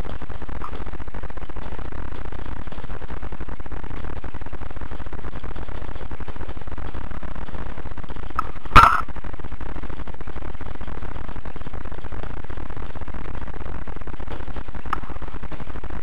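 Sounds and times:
electrical buzz: 0.0 - 16.0.

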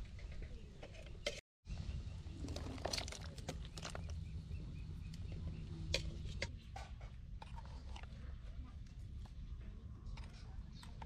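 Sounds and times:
soup boiling and bubbling: 2.3 - 4.2.

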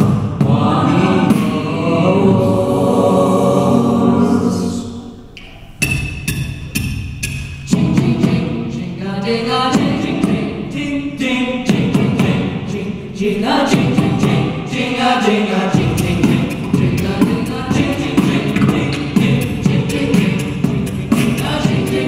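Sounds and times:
vocal group singing: 0.0 - 5.6, 7.2 - 22.0
vocal percussion clicks: 5.4 - 7.7.

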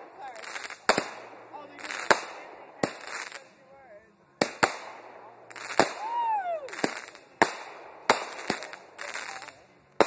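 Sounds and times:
fireworks bangs: 0.0 - 3.5, 4.4 - 9.6.

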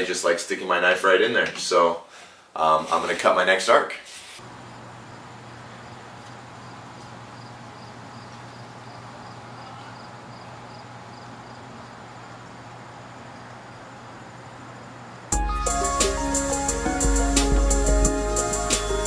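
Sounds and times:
background hiss: 0.0 - 4.5
faint insect chirping: 4.4 - 15.3.

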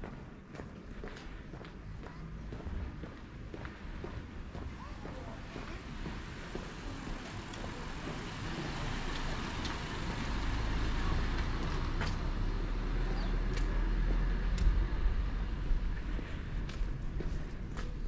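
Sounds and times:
vehicle engine and tyre rumble: 0.1 - 18.0.

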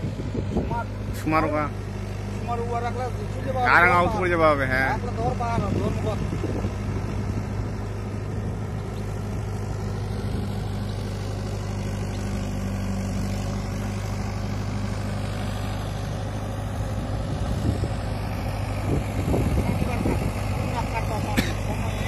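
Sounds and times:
tractor diesel engine humming: 0.0 - 22.0.

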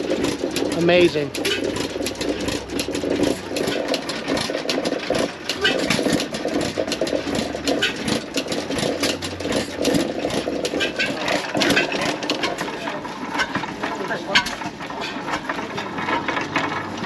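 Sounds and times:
sharp mechanical clicks: 0.0 - 12.8
gas engine running: 0.0 - 17.0.

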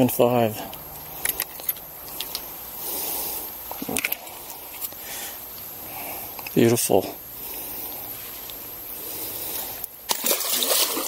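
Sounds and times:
water splashing: 10.1 - 11.0.

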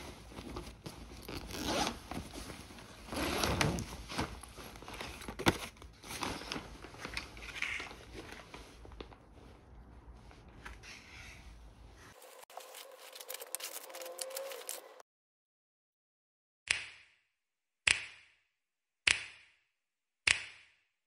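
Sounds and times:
fabric bag rustling: 0.0 - 10.5, 12.1 - 15.0.

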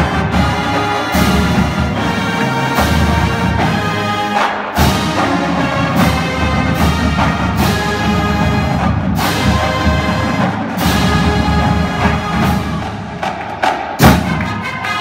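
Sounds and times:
marching band brass chords: 0.0 - 15.0.

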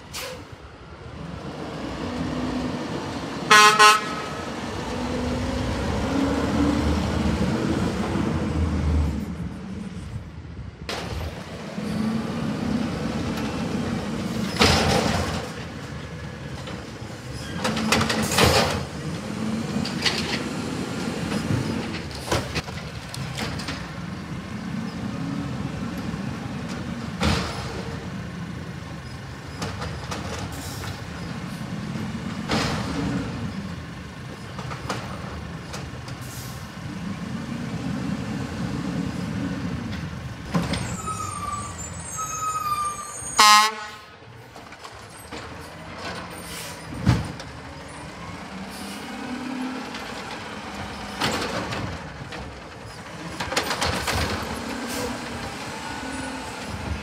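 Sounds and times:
garbage truck engine revving: 1.2 - 9.0, 11.4 - 22.6, 46.5 - 57.0.

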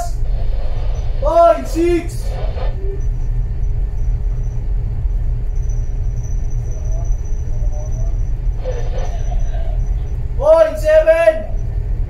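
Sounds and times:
faint high-pitched whine: 0.0 - 12.0
ship low rumble: 0.0 - 12.0.

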